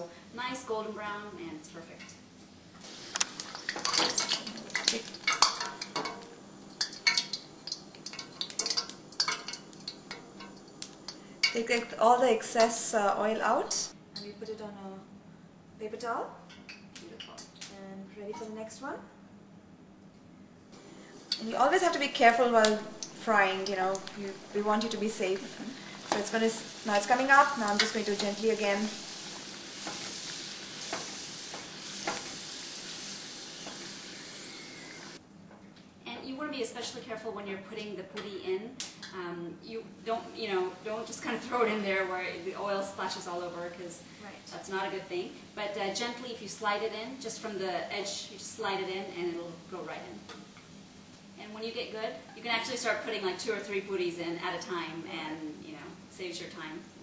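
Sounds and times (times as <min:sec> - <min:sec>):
hot oil crackling and popping: 0:02.7 - 0:13.0, 0:20.8 - 0:35.2, 0:38.8 - 0:39.1, 0:48.6 - 0:51.4.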